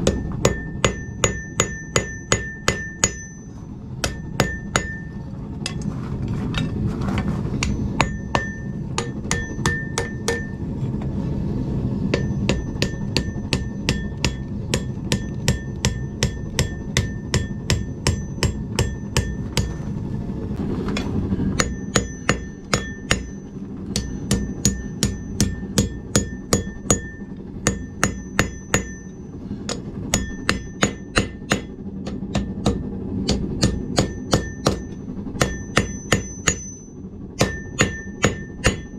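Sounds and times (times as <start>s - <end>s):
hammer ringing on anvil: 0.0s - 5.8s, 7.6s - 10.6s, 12.1s - 19.8s, 21.4s - 38.9s
low rumble: 0.0s - 38.9s.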